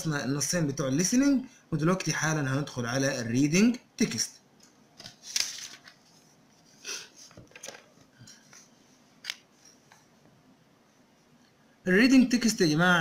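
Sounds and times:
paper page rustling: 0:05.0 - 0:09.4.

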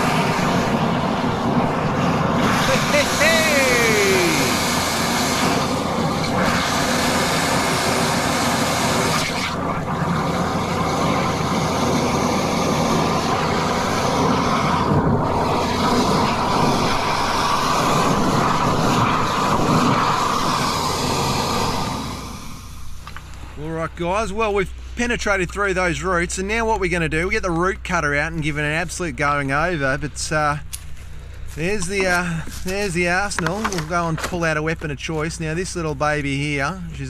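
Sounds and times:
drain jetter blasting water: 0:00.0 - 0:23.1.

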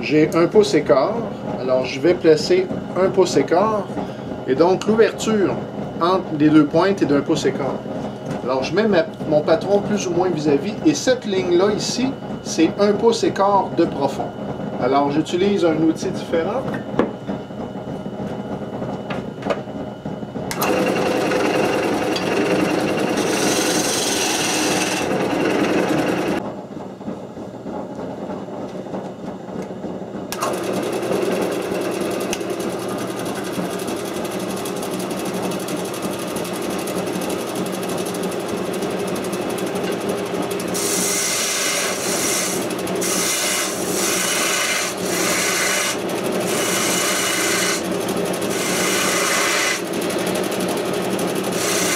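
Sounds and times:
lathe motor hum: 0:00.0 - 0:51.9
gouge scraping wood on lathe: 0:20.6 - 0:26.4, 0:30.6 - 0:51.9.

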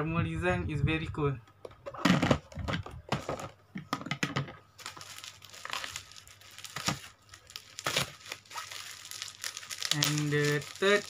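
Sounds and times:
packaging crinkling and rustling: 0:02.5 - 0:03.6, 0:04.8 - 0:11.0.

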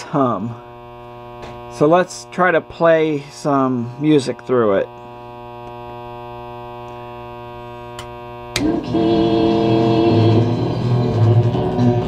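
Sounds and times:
buzzy amplifier hum: 0:00.0 - 0:12.0
music through amplifier: 0:08.6 - 0:12.0.

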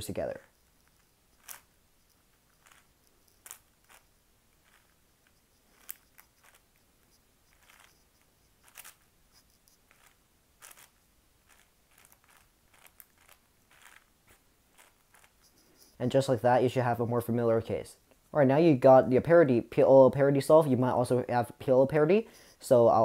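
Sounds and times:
puzzle cube clicks and swishes: 0:00.1 - 0:16.0
plastic cube clacks: 0:00.5 - 0:14.1, 0:14.7 - 0:15.5.

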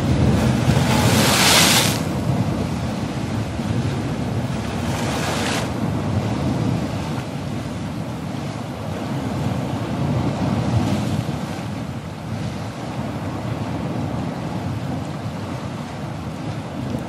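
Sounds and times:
water rushing from spillway: 0:00.0 - 0:06.0
wind buffeting microphone: 0:00.0 - 0:17.0.

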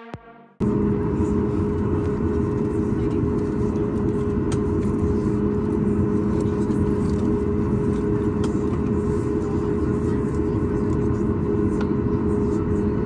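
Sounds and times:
jet engine cabin hum: 0:00.0 - 0:13.0.

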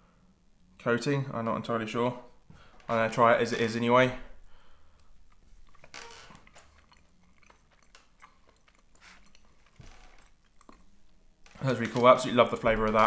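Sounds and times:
soft chewing noises: 0:04.7 - 0:12.2.

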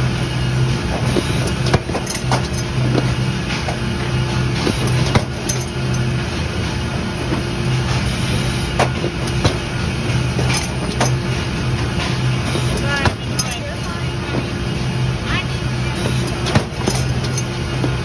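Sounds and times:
machinery hum: 0:00.0 - 0:18.0
mechanism clicks and knocks: 0:04.5 - 0:06.1, 0:16.0 - 0:18.0.

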